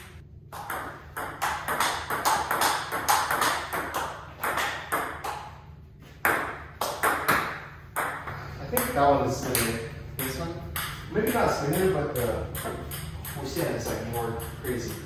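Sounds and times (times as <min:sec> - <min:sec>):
table tennis ball clicks: 0:09.5 - 0:15.0.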